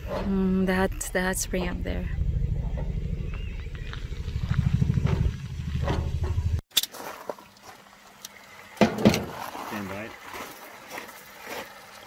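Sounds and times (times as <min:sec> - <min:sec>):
wind buffeting microphone: 0:00.7 - 0:06.6.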